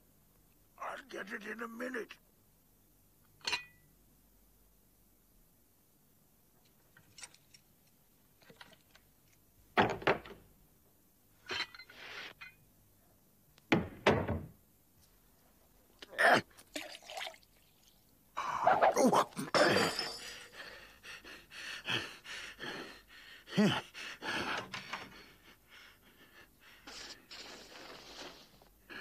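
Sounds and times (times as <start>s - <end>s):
door knocks and thunks: 9.8s - 10.4s, 13.7s - 14.6s
tea pouring from teapot: 16.6s - 18.0s
tea tray and cups clattering: 19.5s - 20.5s.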